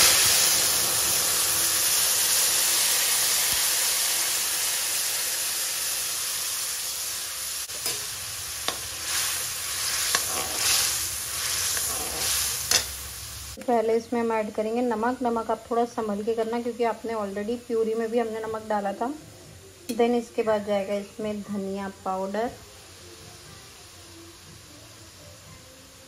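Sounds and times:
metal spoon scraping a pan: 7.7s - 13.0s.

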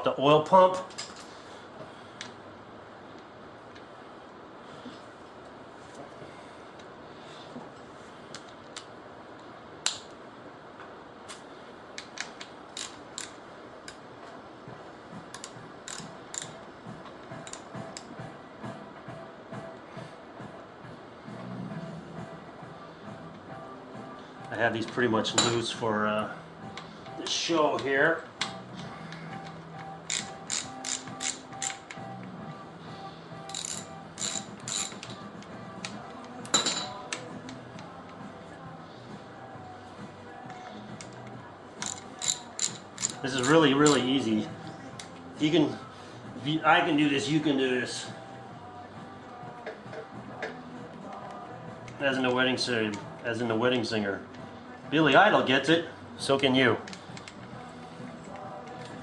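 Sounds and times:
ratchet wrench clicking: 12.1s - 13.4s, 15.3s - 16.6s, 17.4s - 17.6s, 30.1s - 32.0s, 33.5s - 35.1s, 41.8s - 44.0s
metallic clinks of bolts: 33.5s - 35.1s.

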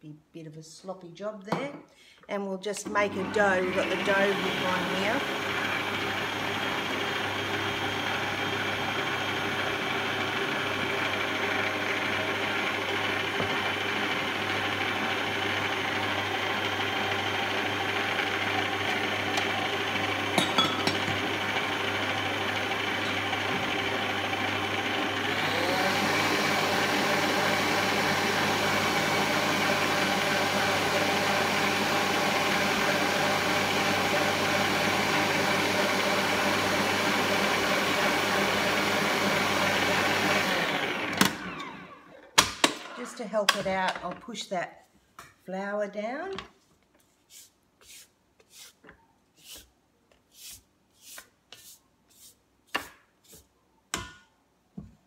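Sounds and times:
stand mixer motor running: 3.2s - 42.0s.

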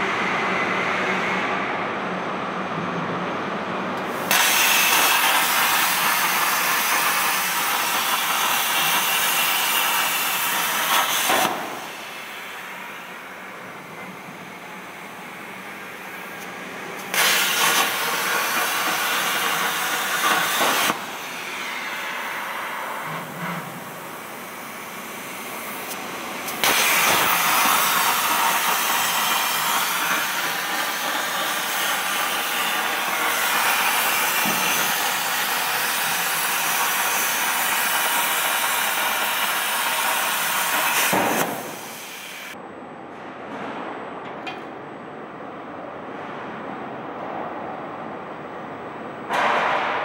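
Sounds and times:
plasma torch hissing: 4.1s - 13.5s, 17.0s - 42.6s.

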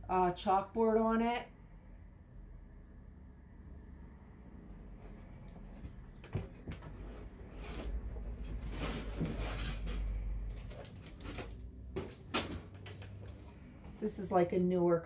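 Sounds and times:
rustling and handling of signs: 5.0s - 14.2s.

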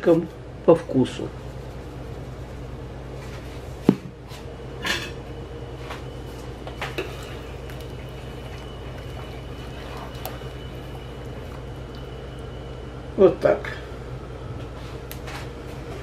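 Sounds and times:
steady low hum: 0.0s - 16.0s
liquid sloshing in a pot: 6.2s - 12.9s.

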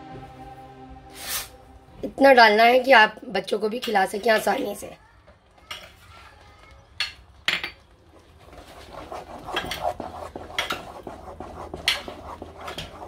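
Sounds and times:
wooden spoon stirring mashed potatoes: 7.9s - 13.0s.

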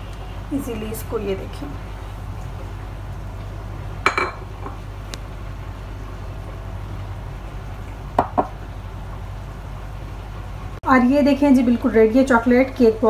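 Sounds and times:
steady low hum: 0.0s - 13.0s
bowl knocking on stone countertop: 4.1s - 4.8s, 8.2s - 8.6s.

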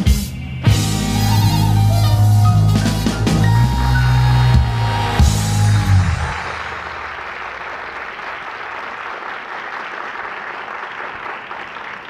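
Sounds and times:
music: 0.0s - 6.8s
audience applauding: 3.2s - 12.0s.

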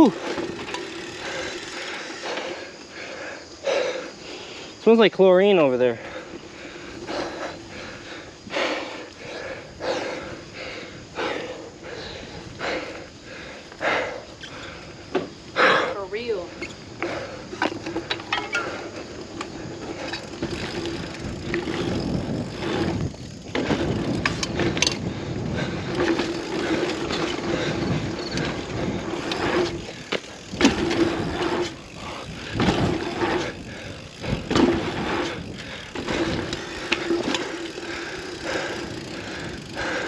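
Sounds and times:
bicycle tyre and frame rattle: 0.0s - 40.0s
bicycle landing knocks: 15.1s - 15.4s, 29.2s - 37.8s.

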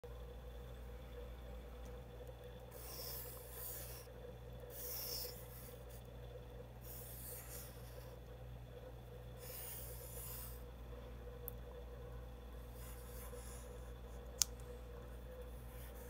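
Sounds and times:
faint steady hum: 0.0s - 16.0s
pencil scratching on paper: 2.7s - 6.1s, 6.8s - 8.2s, 9.4s - 10.7s, 12.6s - 14.1s, 15.4s - 16.0s.

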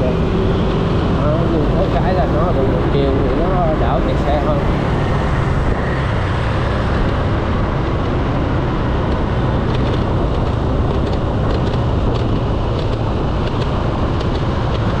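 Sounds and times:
scooter engine riding: 0.0s - 15.0s
surrounding motorbikes and cars: 0.0s - 15.0s.

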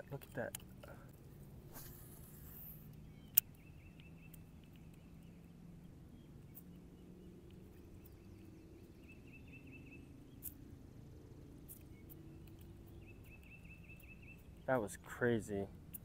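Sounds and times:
sharp click: 3.3s - 5.0s.

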